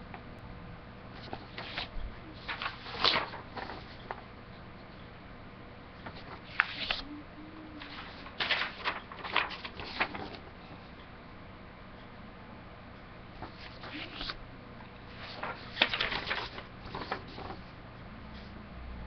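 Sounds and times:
paper rustling: 1.2s - 4.3s, 6.0s - 7.1s, 7.7s - 10.8s, 13.4s - 14.4s, 15.0s - 17.7s.

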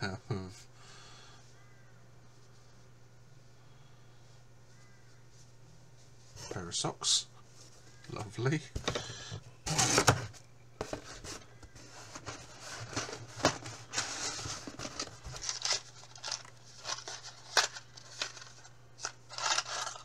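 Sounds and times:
faint steady hum: 0.0s - 20.0s
packing material rustling: 12.1s - 20.0s.

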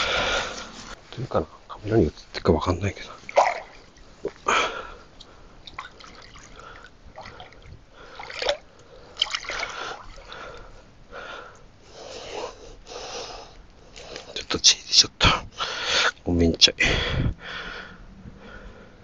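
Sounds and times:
water splashing and sloshing: 3.0s - 4.4s, 5.6s - 10.6s.

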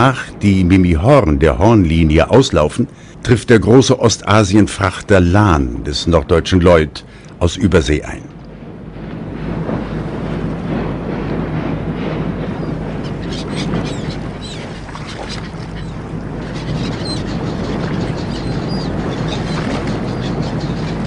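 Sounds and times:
ship engine hum: 0.0s - 21.0s
water wash: 9.2s - 21.0s
birds chirping: 12.5s - 21.0s.

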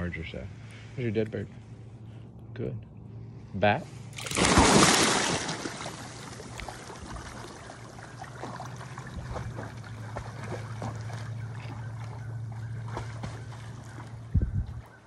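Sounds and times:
steady low hum: 0.0s - 15.0s
small splashes and drips: 4.2s - 14.8s
dog swimming through water: 4.2s - 15.0s.

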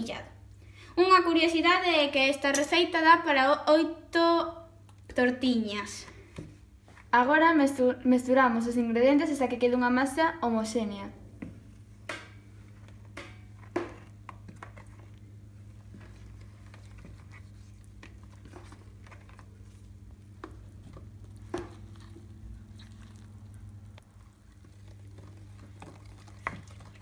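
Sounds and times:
steady low hum: 7.9s - 27.0s
spoon stirring wet batter: 11.6s - 27.0s.

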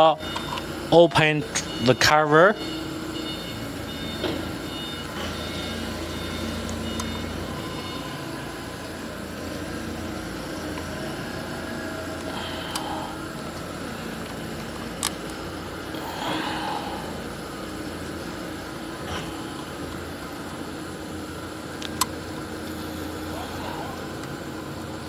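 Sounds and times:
machinery hum: 0.0s - 25.0s.

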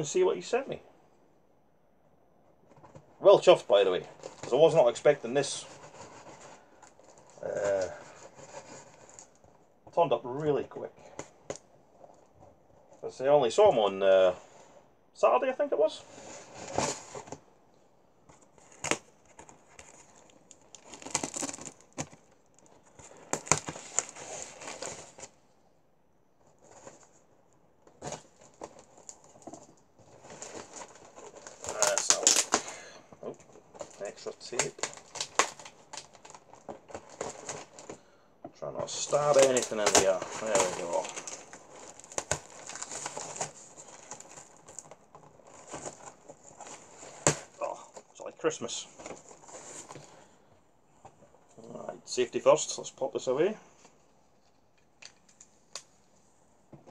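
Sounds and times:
packing tape crinkling and tearing: 18.6s - 25.4s, 27.9s - 38.1s, 38.8s - 50.1s
packing tape peeling: 31.3s - 32.7s
cardboard box being opened: 38.8s - 47.7s.

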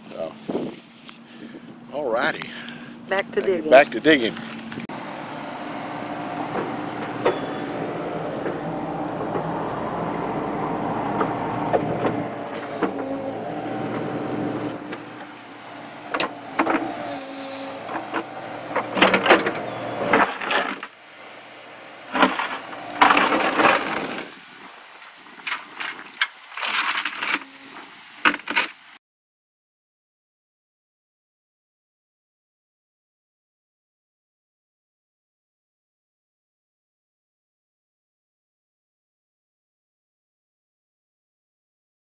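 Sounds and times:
excavator engine and hydraulic hum: 0.0s - 28.6s.

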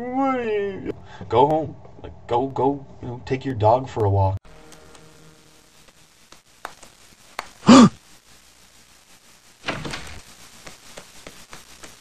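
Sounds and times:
noisy clatter or rustle: 9.6s - 12.0s.

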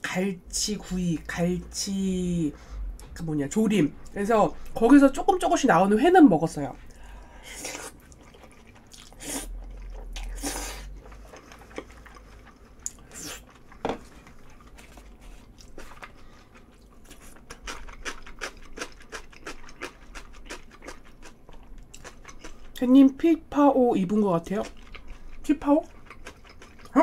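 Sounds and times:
person chewing food: 6.8s - 22.9s, 24.5s - 27.0s.

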